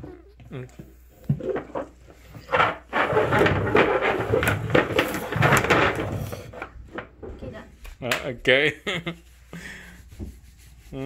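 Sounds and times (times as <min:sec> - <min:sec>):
plastic bowls scraping and knocking: 0:00.0 - 0:07.7.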